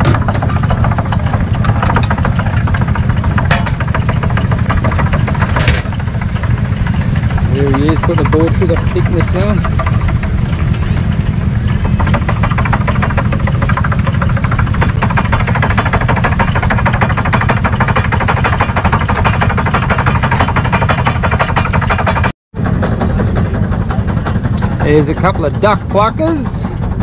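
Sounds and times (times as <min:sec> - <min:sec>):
planer cutters clattering: 0:00.0 - 0:22.3
engine and belt drone: 0:00.0 - 0:27.0.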